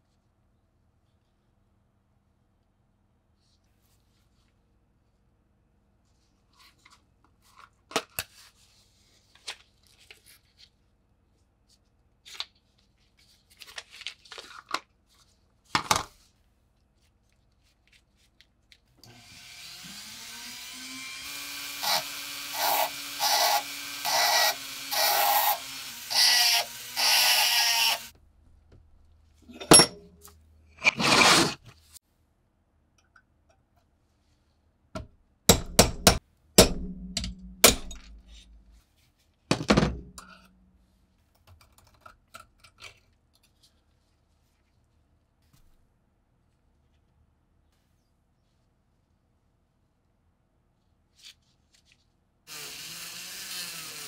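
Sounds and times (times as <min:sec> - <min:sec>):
rotary tool grinding metal: 0:19.1 - 0:28.1, 0:30.8 - 0:31.6, 0:52.5 - 0:54.0
sharp knocks: 0:35.5 - 0:38.5.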